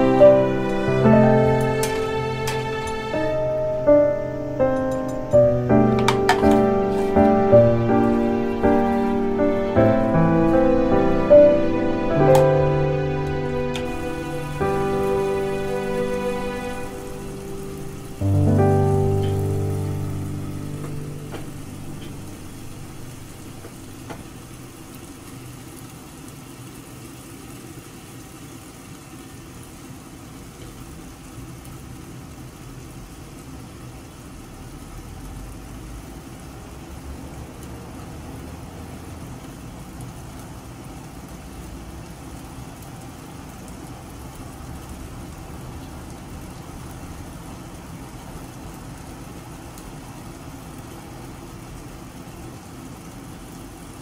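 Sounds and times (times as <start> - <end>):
low hum with faint hiss: 0.0 - 37.0
food cooking in a frying pan: 0.0 - 54.0.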